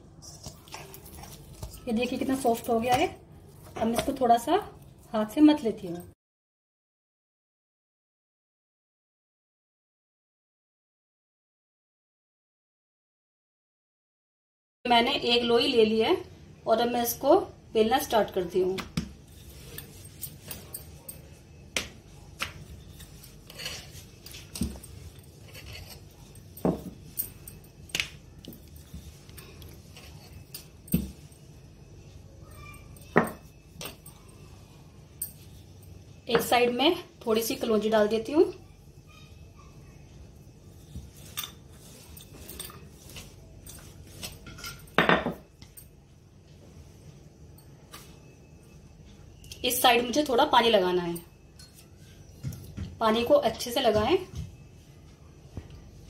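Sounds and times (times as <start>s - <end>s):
rolling pin rolling dough: 18.2s - 32.2s, 40.0s - 45.8s.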